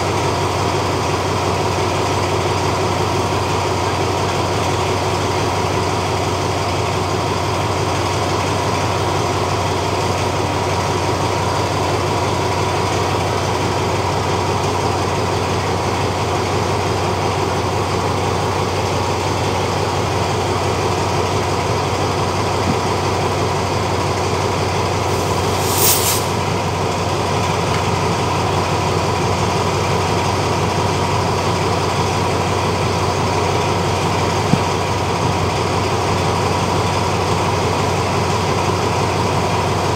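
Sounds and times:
diesel locomotive idling: 0:00.0 - 0:39.9
short hiss: 0:25.1 - 0:26.6.

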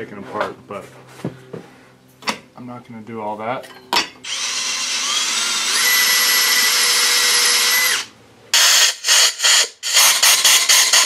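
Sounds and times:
cordless drill whining: 0:04.2 - 0:11.0.

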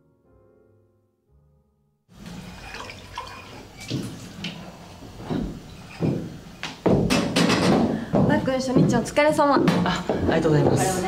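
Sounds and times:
glassware clinking: 0:02.4 - 0:04.0.

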